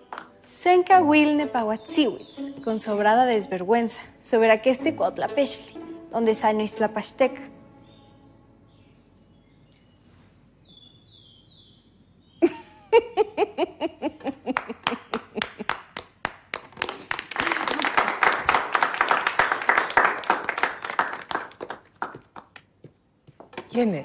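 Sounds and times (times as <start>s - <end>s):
laughter: 12.4s - 15.8s
people applauding: 14.5s - 22.7s.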